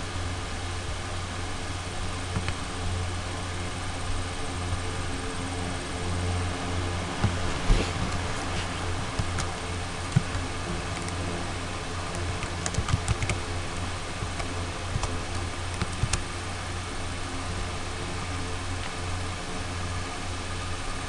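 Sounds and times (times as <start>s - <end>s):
steady low hum: 0.0s - 21.0s
keyboard keys clicking: 2.3s - 2.6s, 7.2s - 11.2s, 12.1s - 13.4s, 14.2s - 16.2s.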